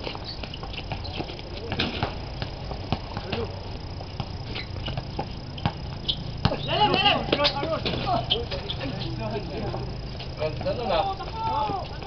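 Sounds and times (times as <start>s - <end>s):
basketball bouncing: 0.0s - 8.6s.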